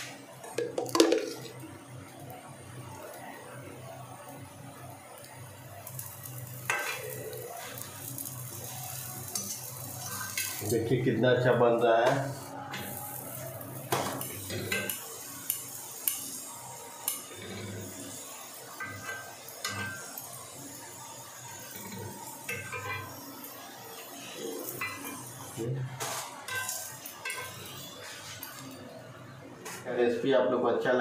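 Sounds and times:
oil sizzling: 0.0 - 29.9
metal spatula scraping on griddle: 6.6 - 10.7, 12.2 - 15.0, 17.1 - 20.3, 21.6 - 23.3, 24.1 - 28.8.

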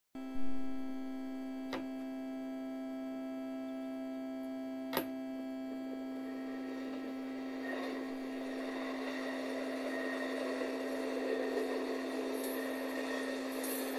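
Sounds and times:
electrical hum: 0.2 - 13.9
rushing noise: 6.3 - 13.9.

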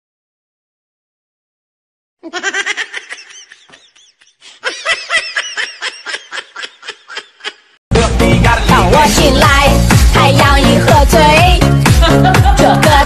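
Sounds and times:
high-pitched laughter: 2.2 - 7.8.

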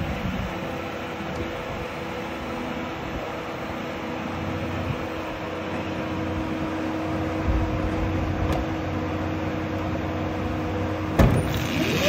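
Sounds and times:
rising electric motor whine: 0.0 - 12.0
sudden thump: 11.2 - 11.5.

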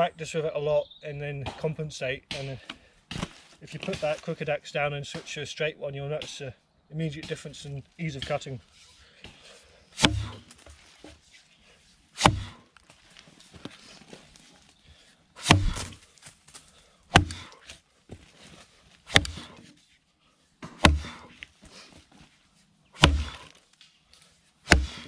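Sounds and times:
axe chopping log: 10.0 - 10.8, 12.2 - 12.6, 15.4 - 16.0, 17.1 - 17.8, 19.1 - 19.7, 20.6 - 21.4, 23.0 - 23.6, 24.7 - 25.0.

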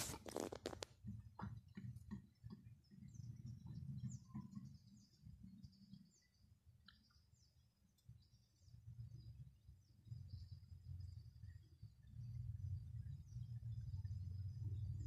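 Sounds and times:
faint low rumble: 8.8 - 15.0.

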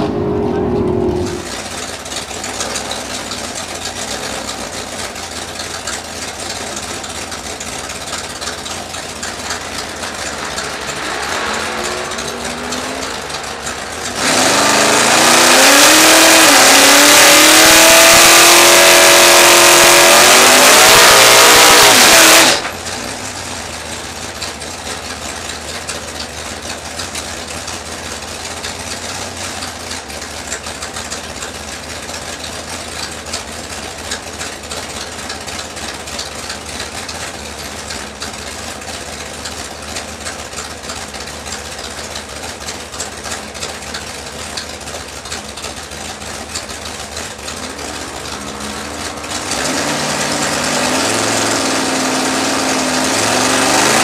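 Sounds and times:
car engine idling and revving: 0.0 - 54.0
tyres spinning with loud hiss: 9.1 - 15.2.

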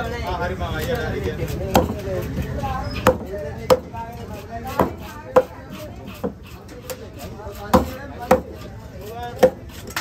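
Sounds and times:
knife chopping fish on wood: 1.4 - 10.0.

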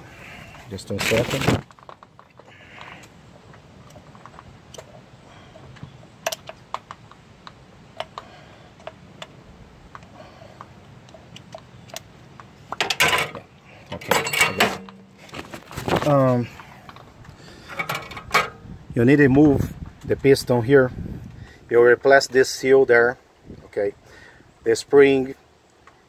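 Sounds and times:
clattering and rustling: 12.7 - 18.6.

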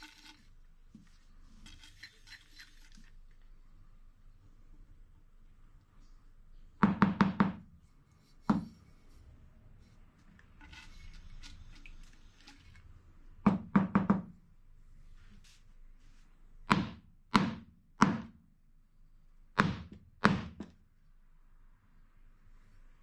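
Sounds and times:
metal tube knocking on workbench: 8.4 - 8.8.

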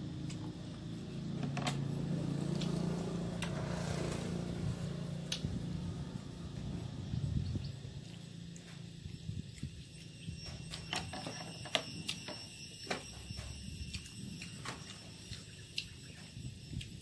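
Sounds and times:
wet chewing and lip smacks: 13.6 - 17.0.

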